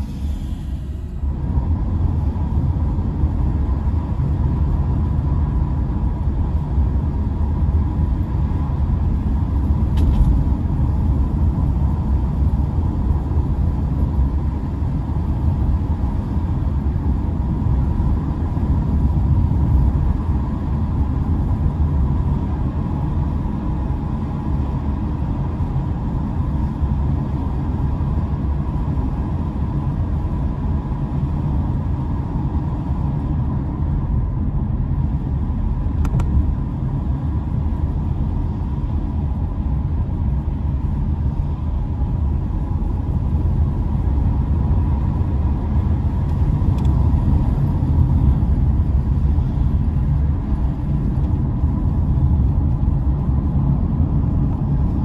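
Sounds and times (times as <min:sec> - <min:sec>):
road and engine noise: 0:00.0 - 0:55.0
brief click: 0:36.0 - 0:36.4.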